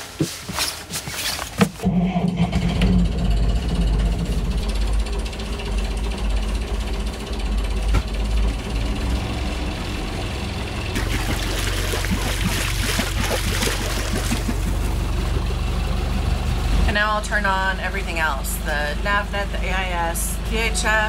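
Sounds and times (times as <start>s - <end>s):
boat engine clattering: 1.7s - 21.0s
steady hum: 2.1s - 7.6s, 10.9s - 15.4s.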